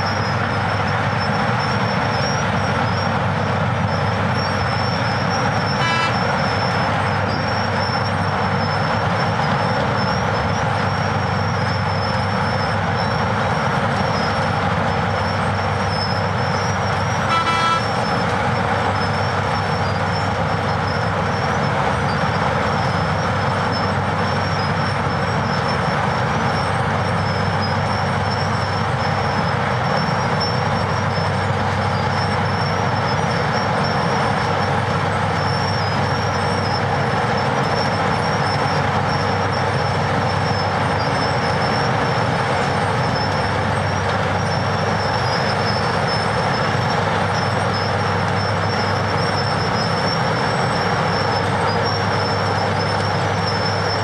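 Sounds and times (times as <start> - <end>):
dump truck running: 0.0 - 54.0
short horn toots: 5.8 - 6.3, 17.2 - 18.1.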